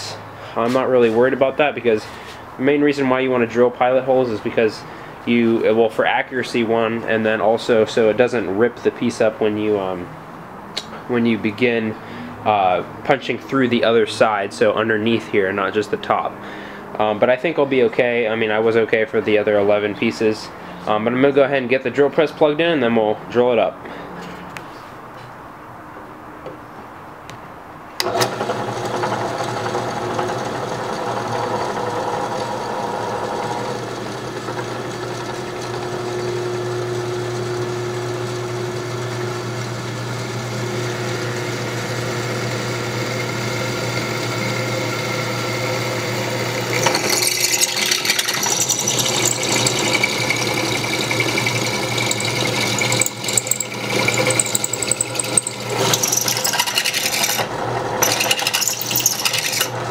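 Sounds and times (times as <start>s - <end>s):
drill bit cutting metal: 28.0s - 59.9s
drill press motor running: 28.0s - 59.9s.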